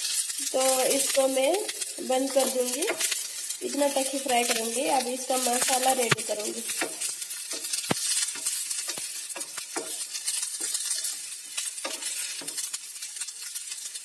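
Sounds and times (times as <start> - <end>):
okra sizzling in oil: 0.0 - 14.0
spatula scraping and tapping pan: 0.0 - 14.0.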